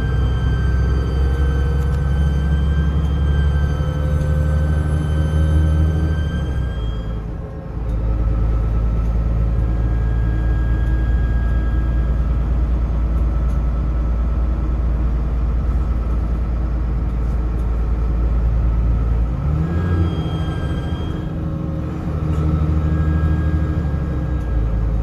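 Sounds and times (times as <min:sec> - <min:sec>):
bus diesel engine rumble: 0:00.0 - 0:25.0
turbo whistle: 0:19.8 - 0:21.4.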